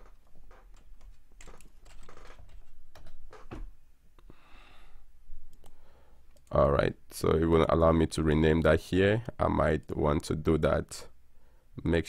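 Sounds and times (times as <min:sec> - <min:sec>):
keyboard typing: 0:00.0 - 0:03.3.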